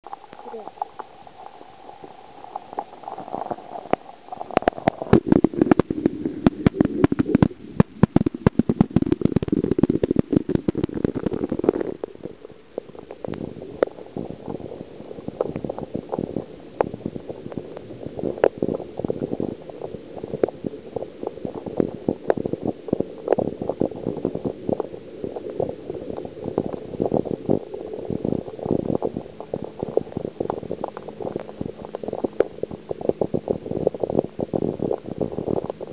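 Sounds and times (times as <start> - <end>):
low underwater rumble: 0.0 - 35.9
underwater clicks and knocks: 2.6 - 12.2.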